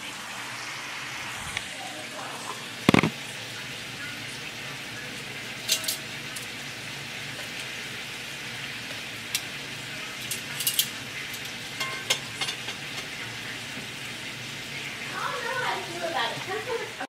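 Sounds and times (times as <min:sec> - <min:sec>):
chicken sizzling in skillet: 0:00.0 - 0:17.0
metal tongs clicking on pan: 0:05.6 - 0:06.5, 0:09.3 - 0:09.5, 0:10.2 - 0:13.1.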